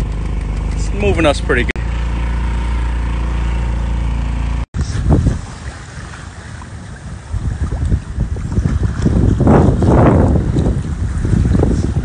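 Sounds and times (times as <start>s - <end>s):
outboard motor running: 0.0s - 12.0s
wind buffeting microphone: 4.8s - 12.0s.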